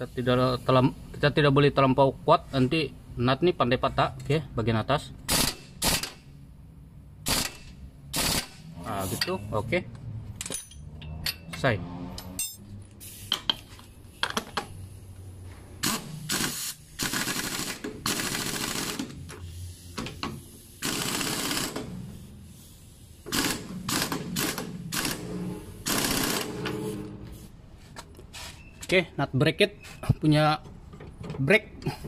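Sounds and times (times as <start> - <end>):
pneumatic impact wrench hammering: 5.3 - 6.3, 7.2 - 9.4, 15.8 - 27.1.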